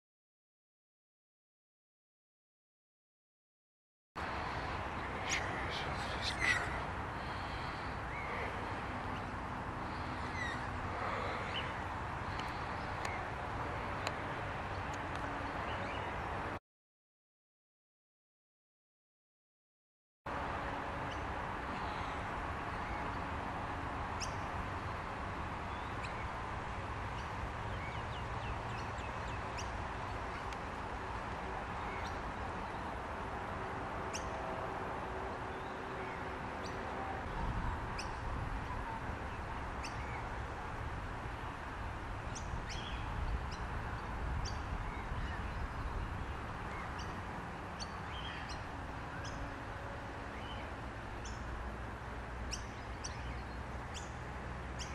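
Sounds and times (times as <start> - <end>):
wild birds chirping: 4.2 - 16.5, 21.0 - 33.2, 37.8 - 40.6, 41.3 - 51.6, 52.4 - 54.2.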